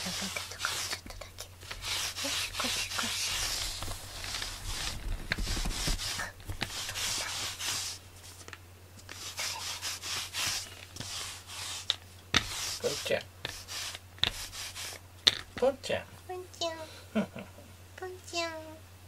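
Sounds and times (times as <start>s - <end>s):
brush rasping through fur: 0.0s - 8.4s, 9.1s - 15.0s.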